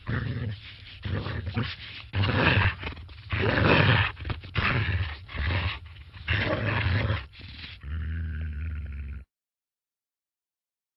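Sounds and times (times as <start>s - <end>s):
dog growling: 0.0s - 9.3s.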